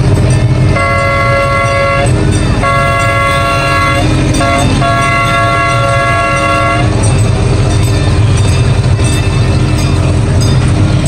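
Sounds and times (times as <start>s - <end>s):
low rumble of train on track: 0.0s - 11.0s
train horn blasts: 0.7s - 7.1s.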